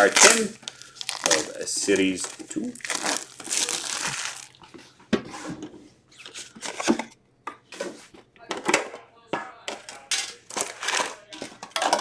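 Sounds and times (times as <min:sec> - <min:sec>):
wrapper tearing and crinkling: 0:00.0 - 0:04.6
cards rustling: 0:00.0 - 0:04.7.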